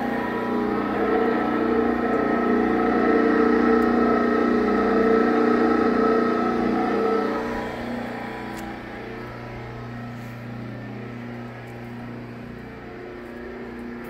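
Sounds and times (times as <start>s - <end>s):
electric motor humming with whine: 0.0s - 14.0s.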